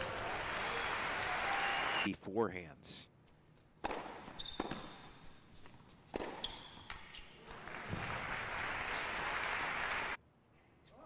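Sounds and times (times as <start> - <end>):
crowd applauding: 0.0 - 2.1, 7.5 - 10.2
sneakers squeaking: 3.6 - 8.0
racket striking tennis ball: 3.8 - 5.3, 6.0 - 7.2.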